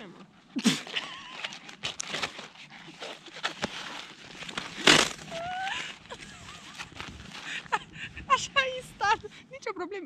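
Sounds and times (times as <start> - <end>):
climbing skin crackling and rustling: 0.2 - 7.8.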